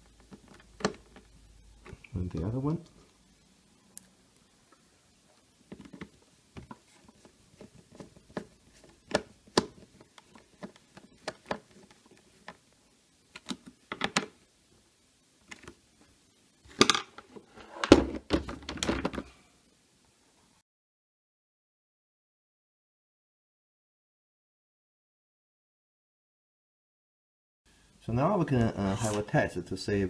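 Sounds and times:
plastic handling rattle: 5.7s - 12.6s, 16.7s - 19.3s.

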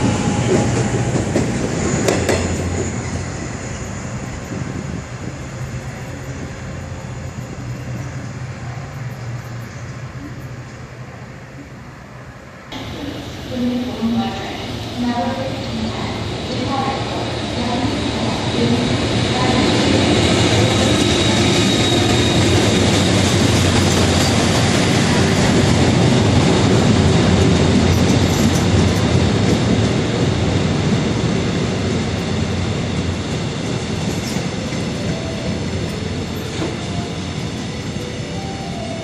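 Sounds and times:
train wheels clacking over rails: 0.0s - 3.5s, 16.8s - 31.1s, 32.0s - 38.1s
locomotive running noise: 12.7s - 39.0s.

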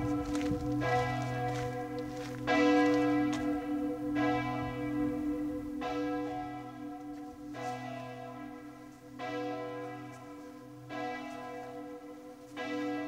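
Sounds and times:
church bell tolling: 0.0s - 13.0s.

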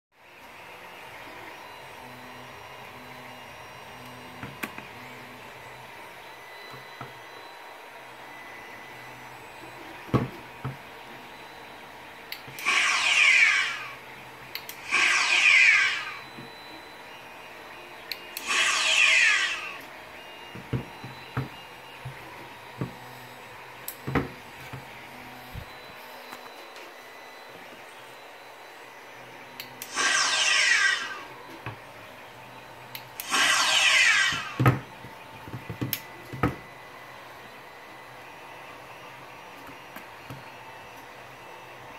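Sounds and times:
electronic phaser firing: 12.6s - 14.0s, 14.8s - 16.2s, 18.4s - 19.8s, 29.8s - 31.3s, 33.2s - 34.6s.

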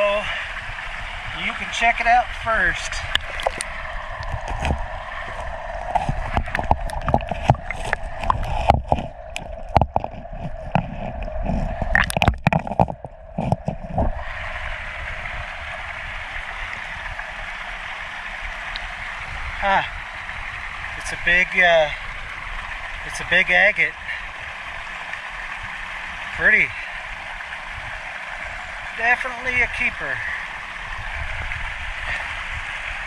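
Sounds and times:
creek water running: 0.0s - 33.0s
stones knocking and clattering: 11.8s - 14.1s.

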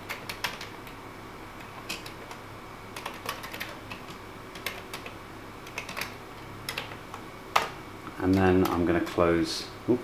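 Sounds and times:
keyboard keys typing clicks: 0.0s - 1.0s, 1.6s - 2.4s, 3.0s - 7.0s.

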